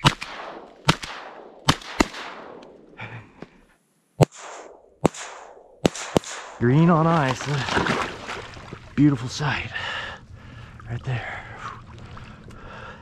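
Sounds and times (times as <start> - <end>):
shotgun shots with echo: 0.0 - 2.6, 4.2 - 6.6.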